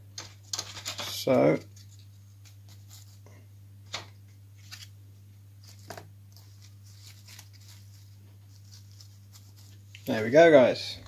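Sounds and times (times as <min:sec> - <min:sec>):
bark pieces rustling and scraping: 0:00.2 - 0:03.2
steady low hum: 0:01.2 - 0:11.0.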